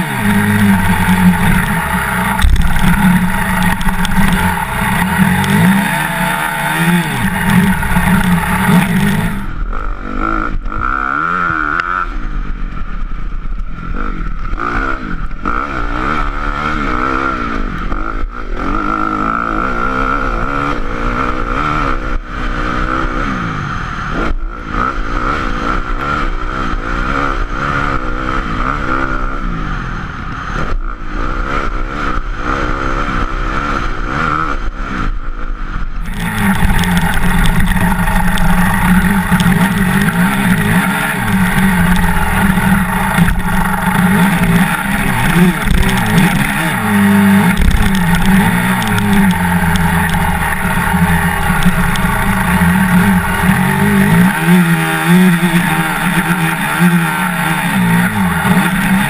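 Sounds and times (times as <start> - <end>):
motorbike engine revving: 0.0 - 12.7, 13.8 - 59.0.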